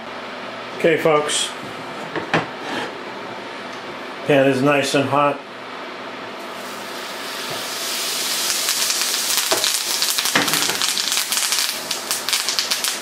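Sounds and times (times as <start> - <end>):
butter sizzling in a frying pan: 6.4 - 13.0.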